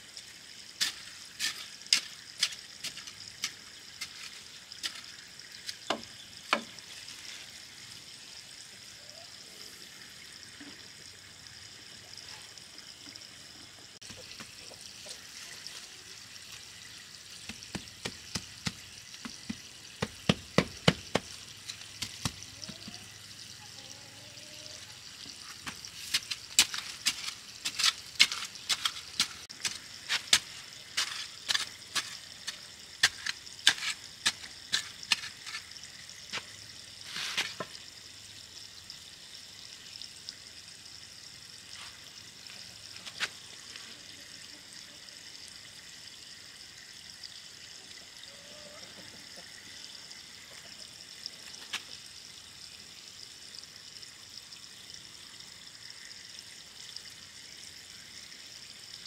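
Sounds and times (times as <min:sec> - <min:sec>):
hands working soil and plants: 0:00.0 - 0:38.0, 0:41.6 - 0:44.6, 0:48.3 - 0:52.2.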